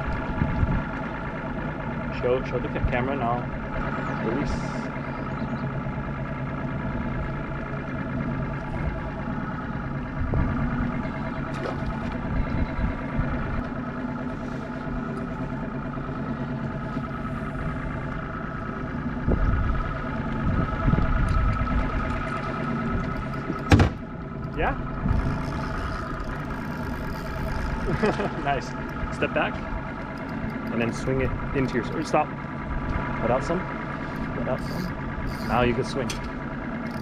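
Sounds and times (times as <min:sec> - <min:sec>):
wind rumbling on microphone: 0:00.0 - 0:01.0, 0:10.0 - 0:13.8, 0:19.1 - 0:29.9
engine idling: 0:00.0 - 0:37.0.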